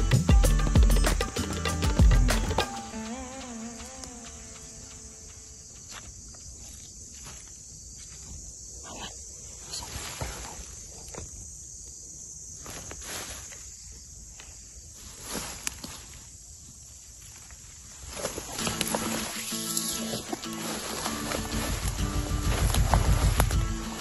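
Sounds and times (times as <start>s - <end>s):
high-pitched insect chorus: 0.0s - 24.0s
footsteps through undergrowth: 2.8s - 8.5s, 12.6s - 24.0s
leaves and stems rustling: 12.6s - 24.0s.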